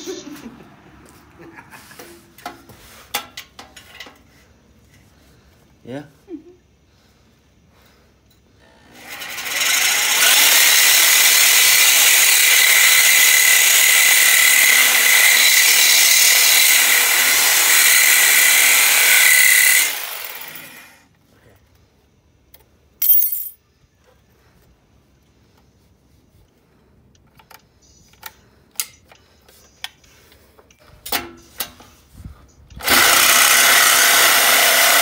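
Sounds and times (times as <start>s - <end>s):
reciprocating saw cutting metal pipe: 8.7s - 21.0s, 32.8s - 35.0s.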